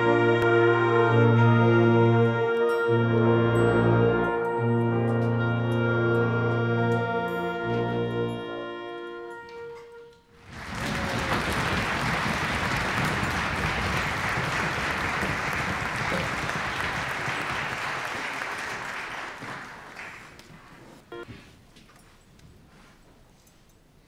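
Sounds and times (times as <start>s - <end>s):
held musical chord: 0.0s - 10.2s
audience applause: 10.4s - 20.8s.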